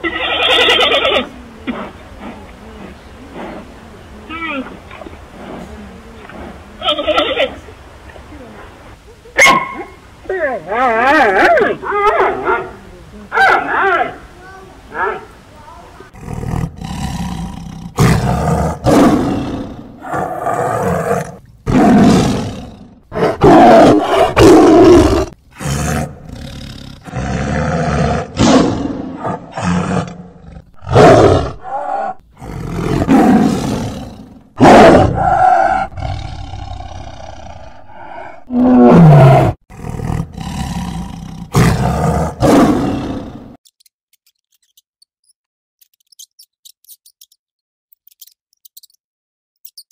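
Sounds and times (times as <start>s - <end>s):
tiger roaring: 16.2s - 43.6s.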